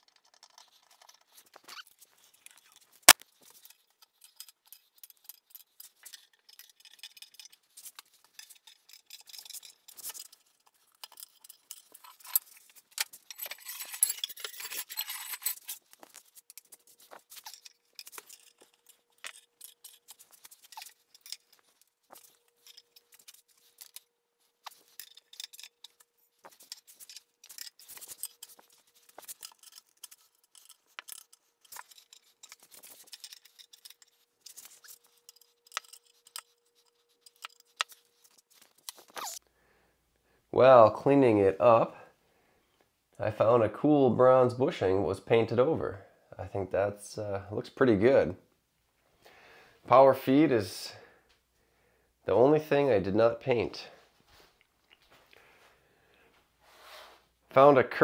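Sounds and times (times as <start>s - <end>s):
wrench clinking on bolts: 2.4s - 24.0s.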